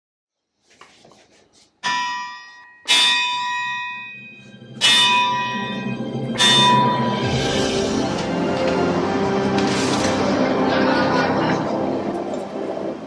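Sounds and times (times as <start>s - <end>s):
sledgehammer striking anvil: 1.8s - 4.2s, 4.8s - 8.1s.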